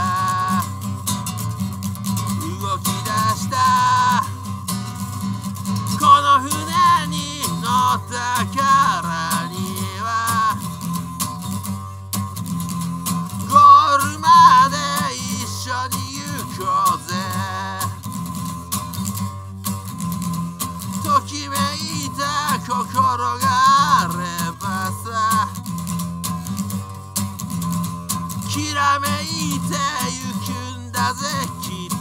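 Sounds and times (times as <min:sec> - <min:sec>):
man singing: 0:00.0 - 0:00.8, 0:02.2 - 0:04.4, 0:05.8 - 0:10.9, 0:13.4 - 0:18.0, 0:21.0 - 0:25.6, 0:28.4 - 0:32.0
acoustic guitar strumming: 0:00.0 - 0:32.0.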